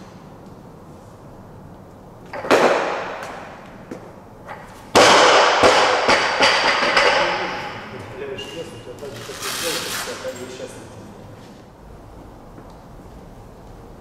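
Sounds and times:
barbell crashing onto platform: 0:04.9 - 0:07.8
barbell bouncing knocks: 0:05.0 - 0:07.8.

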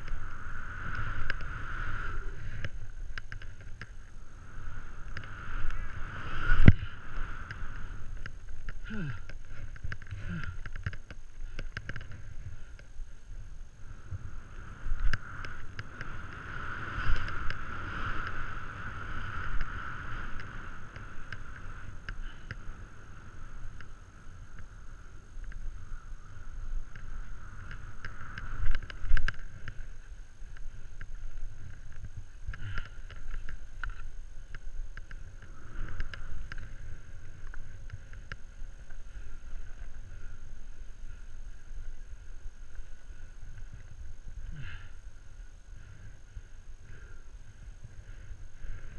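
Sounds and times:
skis scraping over snow: 0:00.0 - 0:24.3
wind rumble on microphone: 0:00.0 - 0:48.9.

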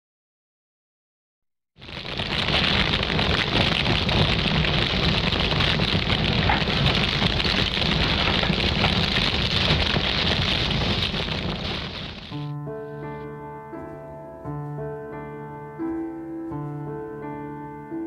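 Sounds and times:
steady rain: 0:01.8 - 0:12.5.

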